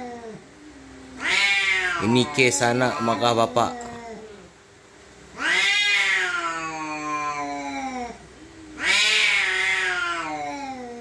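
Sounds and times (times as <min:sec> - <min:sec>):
cat yowling: 0:01.2 - 0:04.5, 0:05.4 - 0:08.2, 0:08.8 - 0:11.0.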